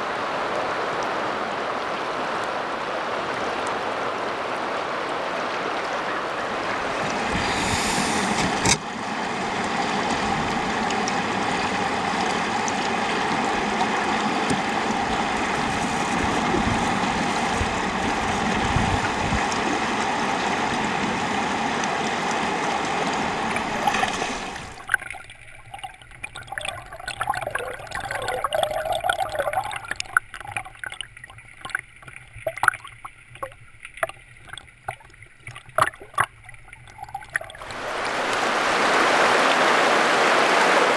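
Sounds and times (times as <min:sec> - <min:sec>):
river flowing over gravel: 0:19.7 - 0:40.9.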